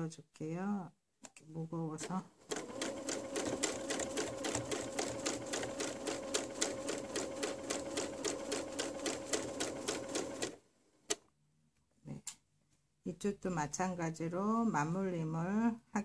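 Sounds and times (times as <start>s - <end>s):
sewing machine stitching: 2.0s - 11.2s.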